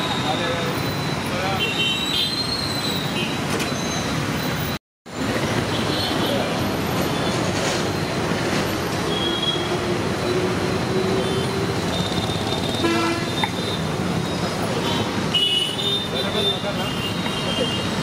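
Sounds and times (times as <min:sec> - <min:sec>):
road traffic noise: 0:00.0 - 0:18.0
vehicle horns tooting: 0:01.4 - 0:03.4, 0:09.1 - 0:18.0.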